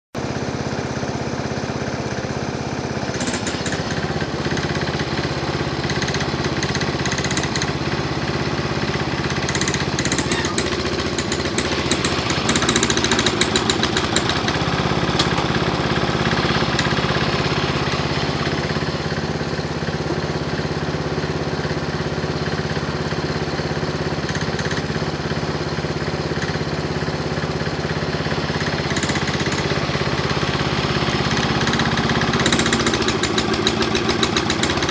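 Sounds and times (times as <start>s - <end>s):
garden tractor engine running: 0.2s - 34.9s
loader digging dirt: 2.9s - 34.9s
rapid clattering: 9.4s - 15.6s, 31.4s - 34.9s.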